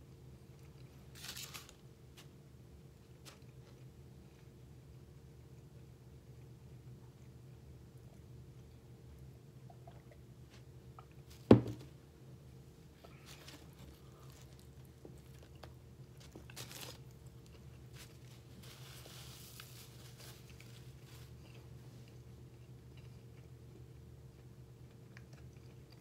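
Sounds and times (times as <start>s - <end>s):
foil wrapper crinkling: 1.1s - 2.3s, 13.1s - 21.5s
paper napkin rustling: 1.1s - 2.3s, 13.0s - 14.8s, 17.9s - 21.4s
glass knocking on table: 11.5s - 11.8s.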